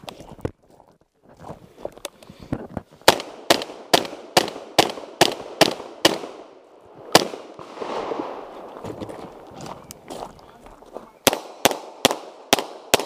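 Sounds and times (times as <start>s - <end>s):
shotgun shots: 3.1s - 9.5s, 11.2s - 13.0s.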